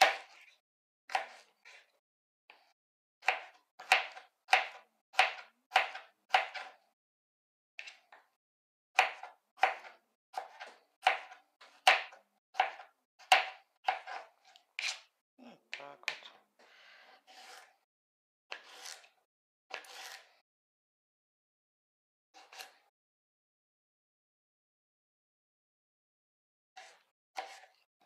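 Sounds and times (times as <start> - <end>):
knife chopping on plastic board: 0.0 - 0.5, 1.1 - 1.9, 2.5 - 6.8, 7.8 - 8.3, 9.0 - 15.1, 18.5 - 20.3, 26.8 - 27.8.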